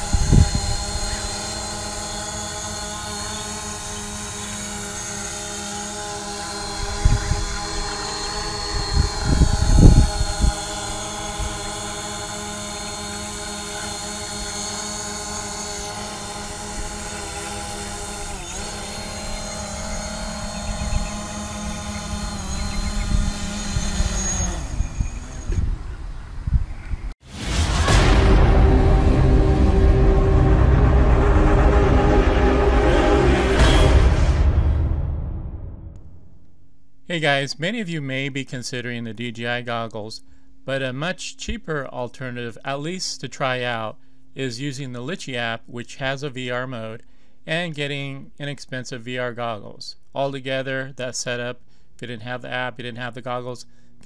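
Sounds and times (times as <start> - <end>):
drone propellers whining: 0.0 - 36.2
low rumbles: 16.3 - 37.8.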